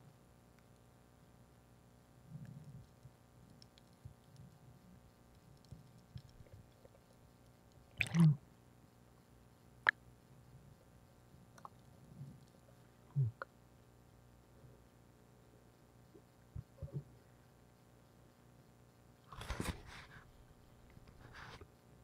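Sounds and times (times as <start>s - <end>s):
sharp clicks underwater: 2.7s - 8.4s, 11.6s - 12.7s.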